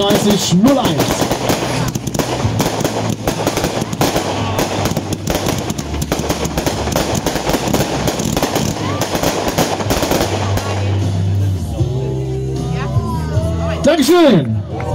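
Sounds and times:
fireworks launches and crackling bursts: 0.0 - 11.5.

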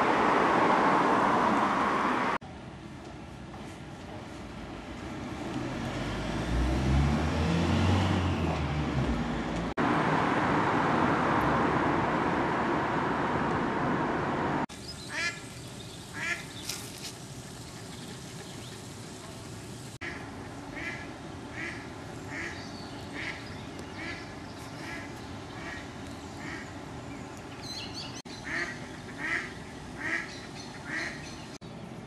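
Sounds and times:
outdoor background noise: 0.0 - 32.0
duck quacks: 28.4 - 31.2.

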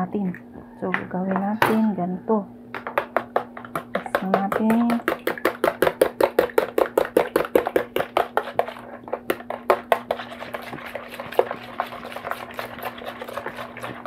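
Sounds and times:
whisk clicking in container: 3.0 - 14.0.

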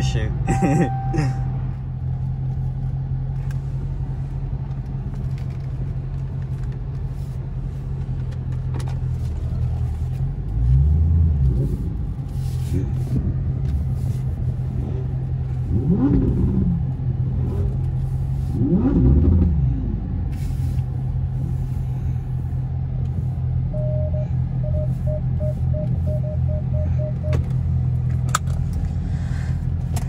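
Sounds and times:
short electronic beeps: 0.5 - 1.6, 23.8 - 27.4
car engine revving: 8.8 - 24.0.

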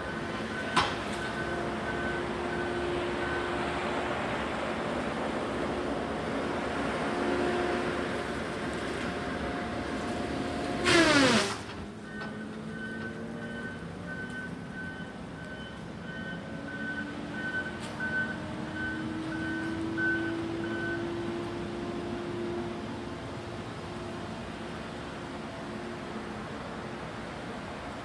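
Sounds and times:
reversing alarm beeping: 0.0 - 3.9, 12.0 - 21.5
distant diesel engine working: 0.0 - 28.0.

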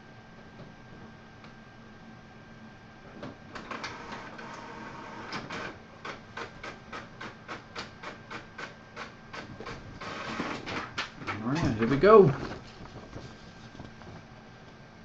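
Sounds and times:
printer paper feed clicks: 3.2 - 12.8
printer whirring: 3.5 - 14.0.

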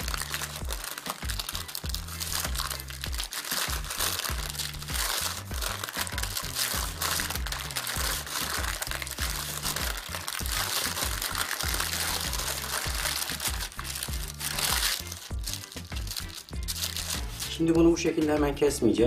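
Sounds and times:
baking paper crinkling: 0.0 - 17.8
background music with bass line: 0.0 - 19.0.

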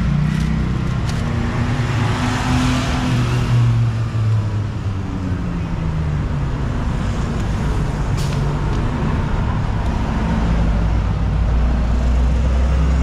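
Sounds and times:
vehicles passing: 0.0 - 13.0
heavy vehicle engine rumble: 3.6 - 13.0.

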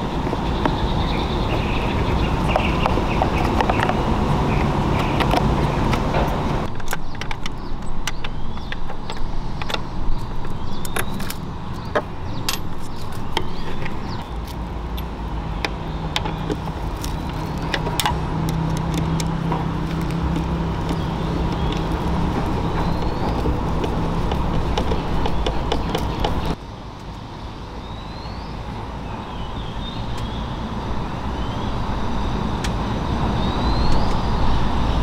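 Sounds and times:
engine and road rumble: 0.0 - 35.0
sharp clicks and rattles: 5.0 - 14.2, 15.0 - 26.6.

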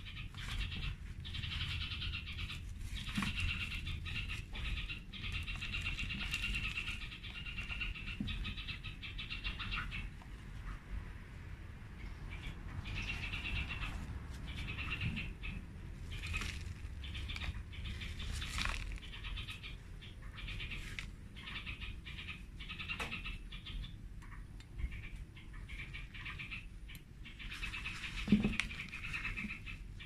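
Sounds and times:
high chirping animal calls: 0.0 - 10.8, 12.0 - 30.0
rustles of soil and plastic pot: 0.2 - 8.6, 13.0 - 19.8, 20.4 - 21.2, 27.4 - 29.8.

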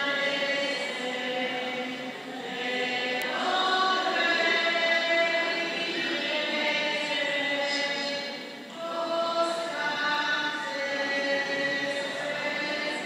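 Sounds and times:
group singing a hymn: 0.0 - 13.0.

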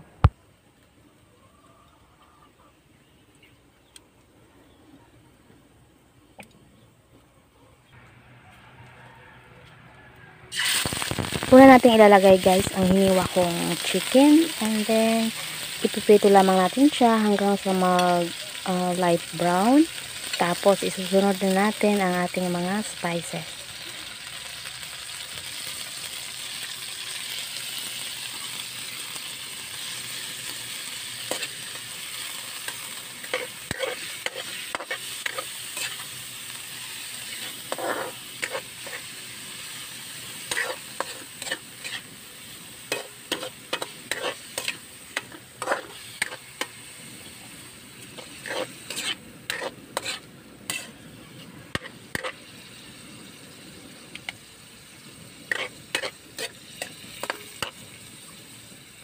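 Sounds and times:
meat sizzling in oil: 10.5 - 59.0
metal spatula scraping pan: 32.6 - 36.2, 37.2 - 39.1, 40.4 - 42.1, 42.9 - 46.7, 48.1 - 52.4, 55.5 - 57.8.

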